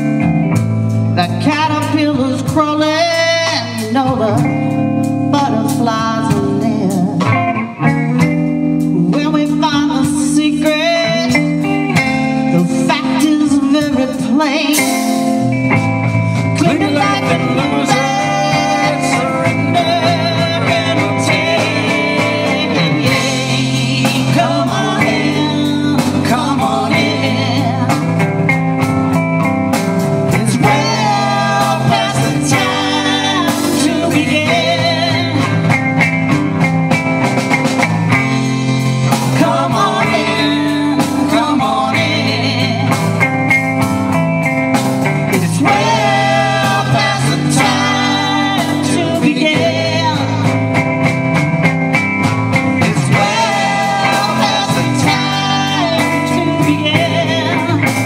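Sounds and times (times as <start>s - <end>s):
drum kit: 0.0s - 58.0s
electric bass: 0.0s - 58.0s
person singing: 1.2s - 15.4s, 16.3s - 28.3s, 30.3s - 35.8s, 39.1s - 43.2s, 45.3s - 50.8s, 52.8s - 58.0s.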